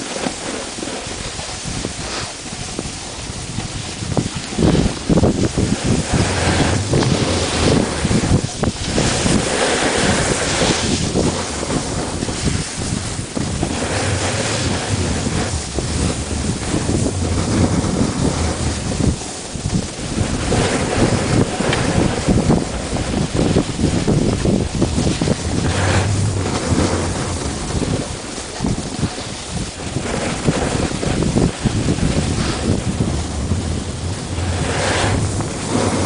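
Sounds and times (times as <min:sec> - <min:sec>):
wind rushing over microphone: 0:00.0 - 0:36.0.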